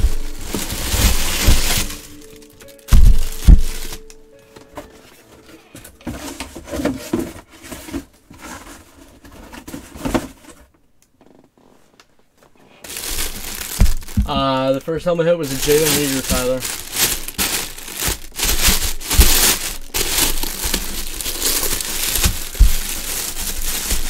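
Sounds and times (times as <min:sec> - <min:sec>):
cardboard box scraping: 0:00.0 - 0:04.0, 0:04.8 - 0:10.7, 0:15.6 - 0:24.0
heavy thuds: 0:00.0 - 0:04.1, 0:13.0 - 0:14.8
plastic bag crinkling: 0:00.0 - 0:08.0, 0:12.8 - 0:24.0.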